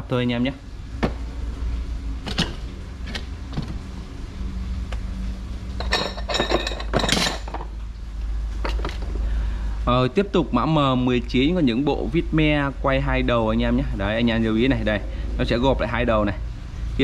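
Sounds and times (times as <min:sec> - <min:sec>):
steady low hum: 0:00.0 - 0:17.0
metal hardware clinking: 0:05.8 - 0:07.7.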